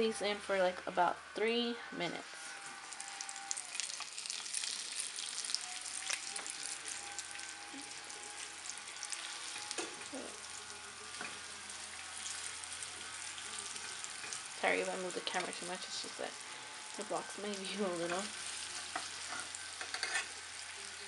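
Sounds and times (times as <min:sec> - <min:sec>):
meat sizzling in oil: 0:02.3 - 0:21.0.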